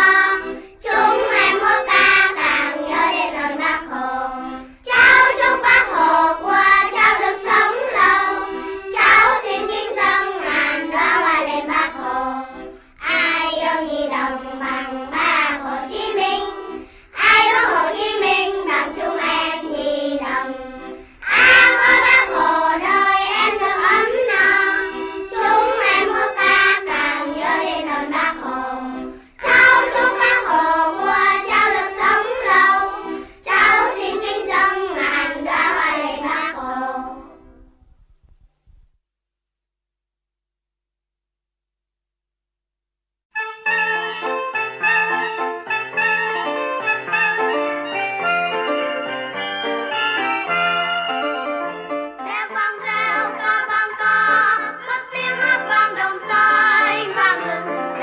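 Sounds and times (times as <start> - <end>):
child singing: 0.0 - 37.3, 52.3 - 57.7
musical accompaniment: 0.0 - 38.0, 43.4 - 58.0.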